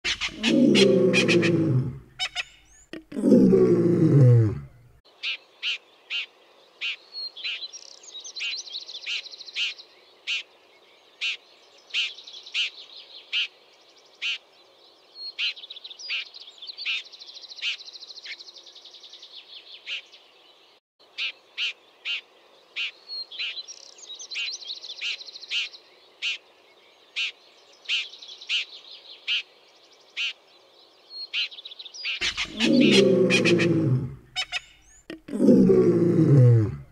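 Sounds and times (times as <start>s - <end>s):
bird rapid chattering: 32.2s - 33.0s.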